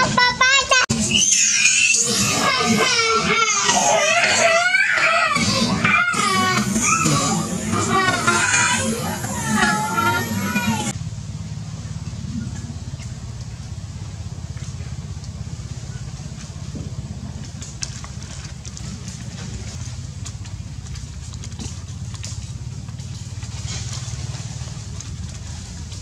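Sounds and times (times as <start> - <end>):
motor engine running: 2.0 - 26.0
dry leaves crackling: 6.0 - 26.0.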